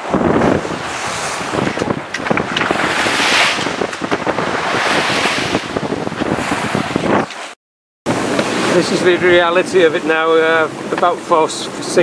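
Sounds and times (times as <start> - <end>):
wind buffeting microphone: 0.0 - 7.5
sea rushing past hull: 0.0 - 12.0.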